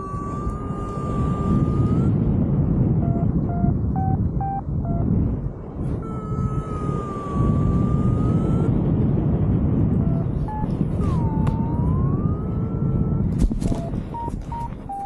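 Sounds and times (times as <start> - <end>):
wind rushing over microphone: 0.0 - 15.0
variometer sliding electronic tone: 3.0 - 5.0, 10.0 - 15.0
short electronic beeps: 3.0 - 5.1, 10.0 - 11.4, 13.5 - 15.0.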